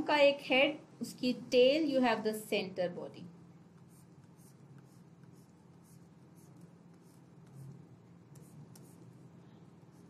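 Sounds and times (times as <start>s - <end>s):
stylus scratching on tablet: 3.3s - 10.0s.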